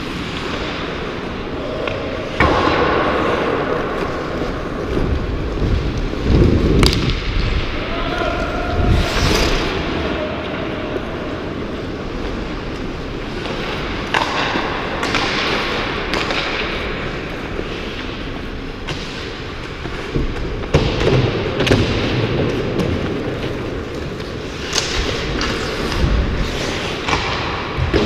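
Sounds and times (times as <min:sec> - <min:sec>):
hockey sticks and puck clacking: 0:00.0 - 0:07.8, 0:09.4 - 0:28.0
skate blades on ice: 0:08.7 - 0:28.0.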